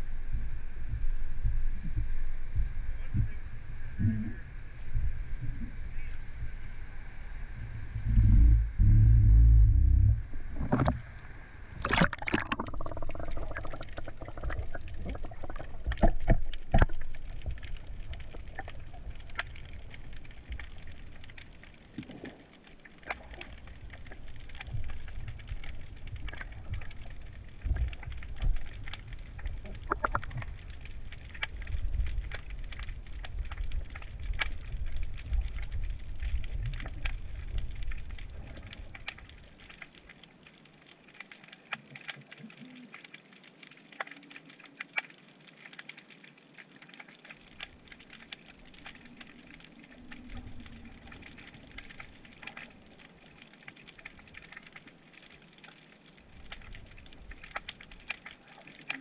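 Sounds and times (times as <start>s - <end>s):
muffled underwater rumble: 0.0s - 39.6s, 47.5s - 54.7s.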